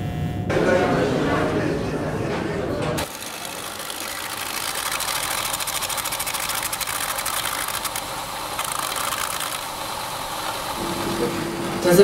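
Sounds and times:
rapid mechanical ticking clatter: 0:03.0 - 0:10.8.

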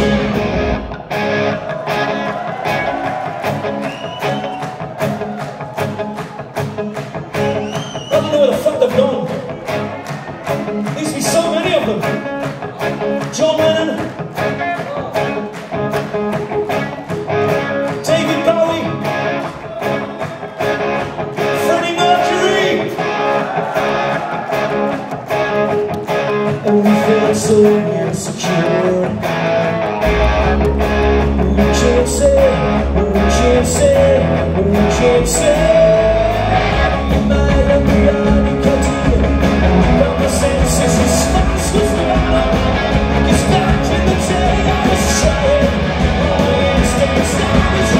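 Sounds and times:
deep bass: 0:00.0 - 0:01.9, 0:29.9 - 0:47.9
electric guitars: 0:00.0 - 0:47.9
man singing: 0:26.5 - 0:29.4, 0:31.2 - 0:47.9
drums keeping a steady beat: 0:30.1 - 0:47.9.

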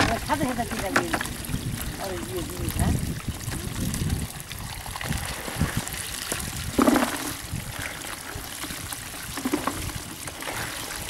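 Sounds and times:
water trickling and dripping: 0:00.0 - 0:11.0
wet fish slithering and rustling: 0:00.0 - 0:11.0
basket wet scrape: 0:05.3 - 0:07.9.

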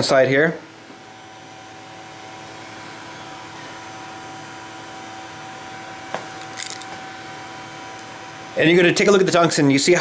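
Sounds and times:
welding machine hum and hiss: 0:00.0 - 0:10.0.

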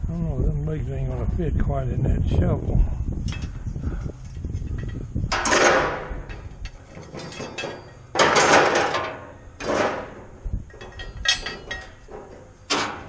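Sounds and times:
scrap iron scraping on metal grate: 0:04.7 - 0:13.0
light metal clinks: 0:06.3 - 0:08.1, 0:10.7 - 0:12.1.

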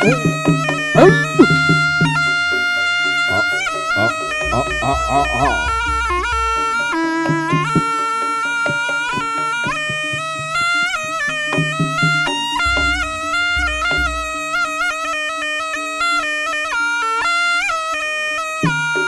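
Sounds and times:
held low tone: 0:00.0 - 0:07.6, 0:12.6 - 0:14.8
sharp drum strokes: 0:00.0 - 0:15.2
shawm reed melody: 0:00.0 - 0:16.8
deep low drum strokes: 0:03.3 - 0:07.0, 0:11.9 - 0:14.8.

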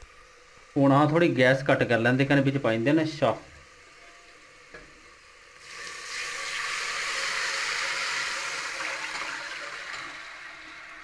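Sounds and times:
liquid pouring into a pot: 0:05.6 - 0:11.0.

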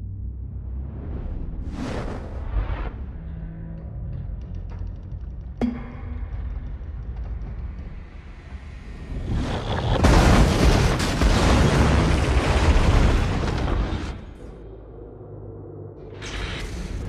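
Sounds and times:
low rumble: 0:00.0 - 0:17.0.

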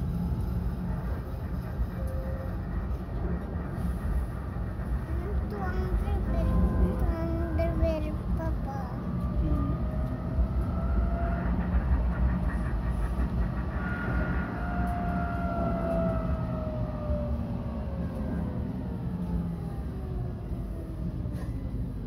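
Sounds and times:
tram rumbling on rails: 0:00.0 - 0:22.0.

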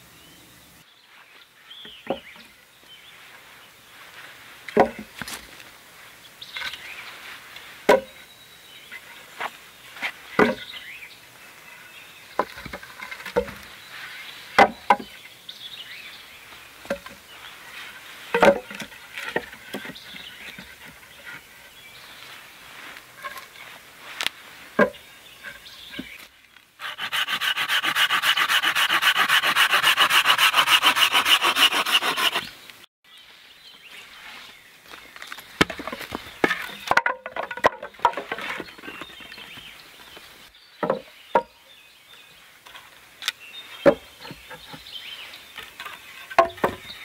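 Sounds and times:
wooden sticks knocking: 0:16.8 - 0:17.2, 0:18.3 - 0:21.4, 0:35.6 - 0:39.0, 0:45.8 - 0:46.9.

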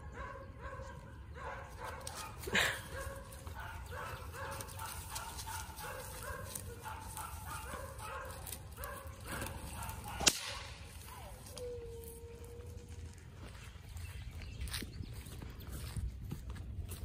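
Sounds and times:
sharp crack: 0:10.0 - 0:10.9.

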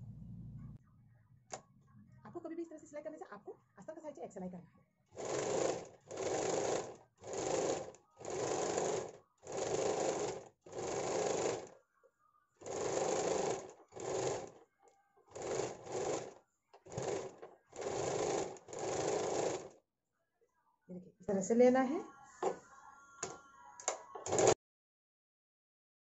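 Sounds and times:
sewing machine stitching: 0:05.1 - 0:11.8, 0:12.6 - 0:14.6, 0:15.3 - 0:19.8, 0:23.9 - 0:24.6.

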